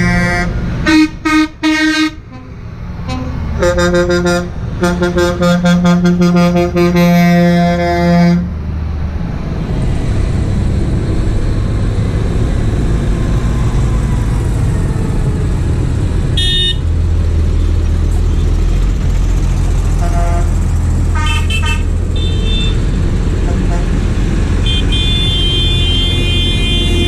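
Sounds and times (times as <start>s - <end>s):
horn toots: 0.0s - 8.5s, 16.4s - 16.8s, 20.0s - 22.8s, 24.6s - 27.0s
diesel tractor engines running: 0.0s - 27.0s.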